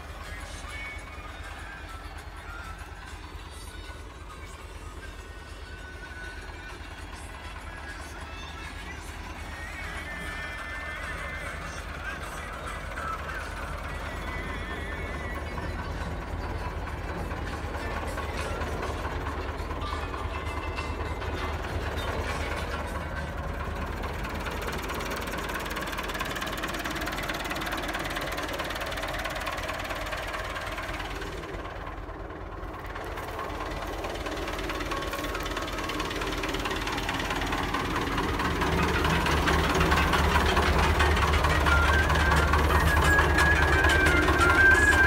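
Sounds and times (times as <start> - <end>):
tractor diesel engine running: 0.0 - 45.0.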